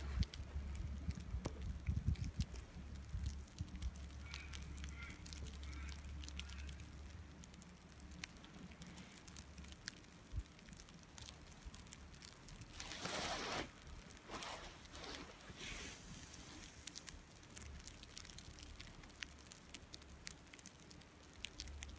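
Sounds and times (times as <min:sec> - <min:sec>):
wind rumble on microphone: 0:00.0 - 0:05.4.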